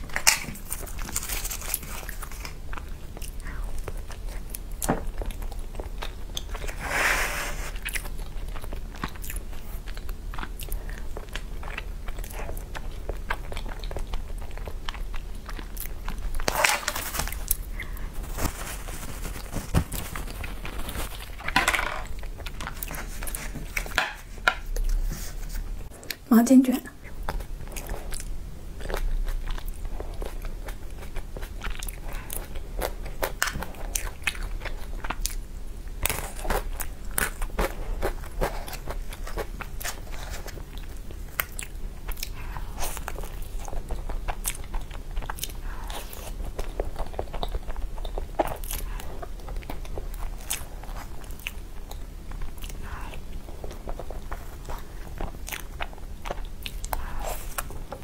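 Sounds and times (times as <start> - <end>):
chewing and wet mouth sounds: 0.0 - 6.8, 7.7 - 26.3, 27.0 - 58.0.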